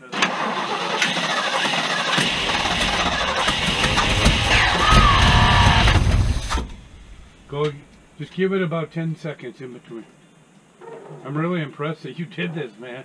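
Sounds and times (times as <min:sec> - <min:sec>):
engine starter cranking: 0:00.0 - 0:07.7
heavy low engine rumble: 0:02.1 - 0:08.2.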